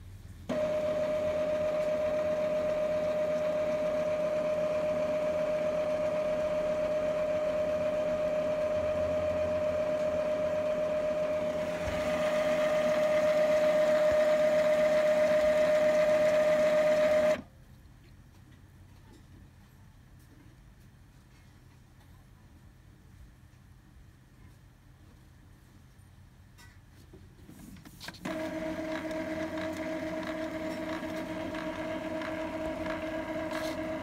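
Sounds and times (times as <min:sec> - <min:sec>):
printer motor whine: 0:00.5 - 0:17.4, 0:28.2 - 0:34.0.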